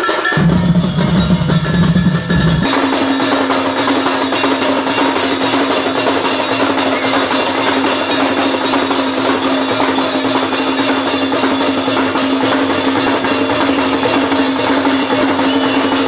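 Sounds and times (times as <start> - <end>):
barrel drums beaten with sticks: 0.0 - 16.0
steady held tone: 0.4 - 3.8.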